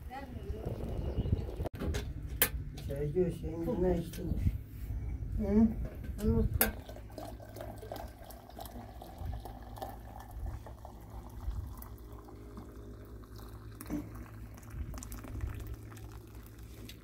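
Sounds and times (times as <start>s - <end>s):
liquid bubbling: 6.7s - 17.0s.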